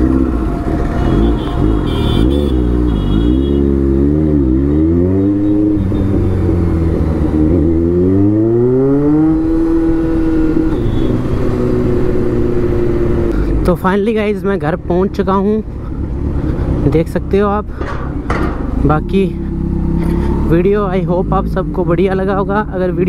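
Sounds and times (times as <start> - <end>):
motorcycle engine revving: 0.0 - 13.3, 17.9 - 22.0.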